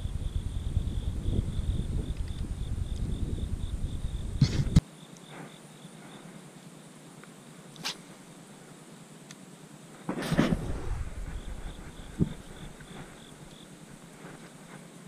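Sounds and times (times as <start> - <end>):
wind rumbling on microphone: 0.0 - 4.8, 10.1 - 14.7
insects chirping: 0.0 - 15.0.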